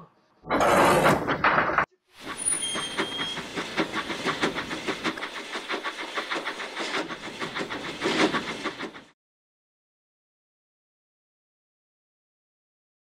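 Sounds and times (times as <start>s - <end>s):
steam hissing: 2.2s - 9.1s
steam locomotive chuffing: 2.2s - 9.2s.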